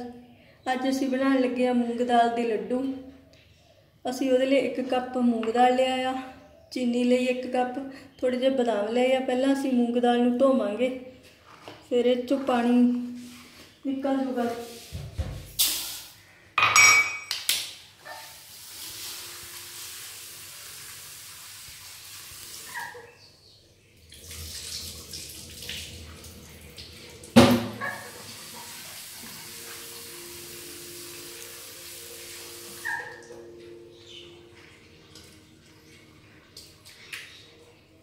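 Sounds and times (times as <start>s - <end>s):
bowls clattering: 16.6s - 17.4s
water poured off: 18.2s - 22.8s, 24.0s - 33.0s.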